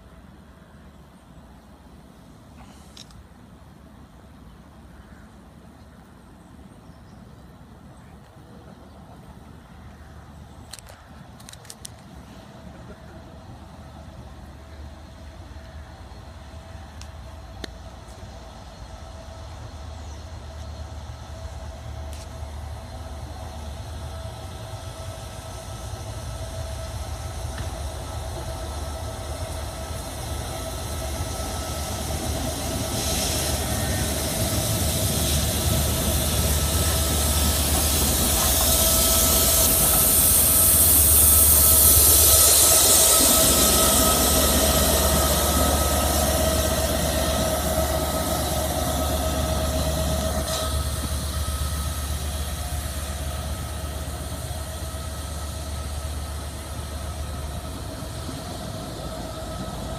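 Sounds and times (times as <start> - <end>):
steam locomotive rumble: 0.0 - 59.9
steam hissing: 21.0 - 59.9.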